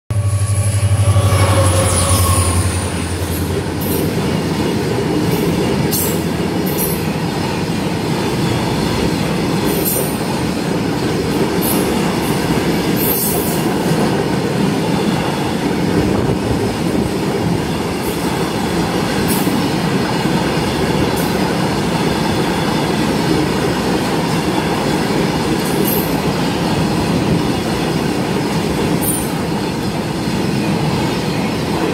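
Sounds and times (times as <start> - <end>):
high wheel squeals: 0.1 - 3.8
low hum: 0.1 - 3.8
train wheels rumbling and clattering: 0.1 - 31.9.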